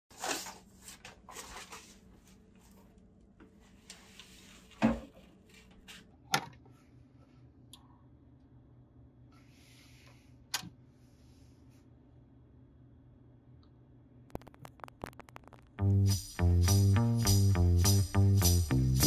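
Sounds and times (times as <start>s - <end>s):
record thumping on turntable: 14.3s - 16.0s.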